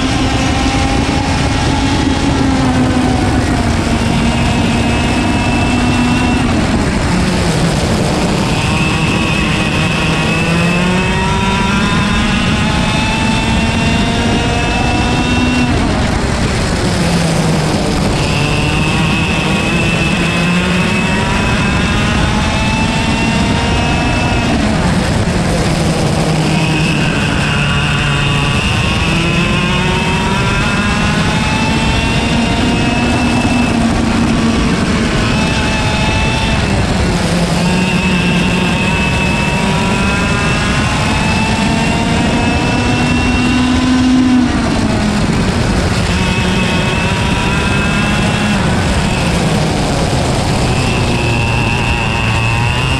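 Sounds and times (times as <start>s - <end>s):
kart engine revving: 0.0s - 52.9s.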